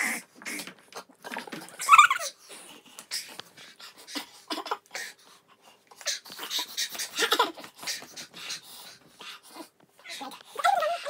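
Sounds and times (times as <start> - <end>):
hard breathing and sniffing: 2.2 - 11.0.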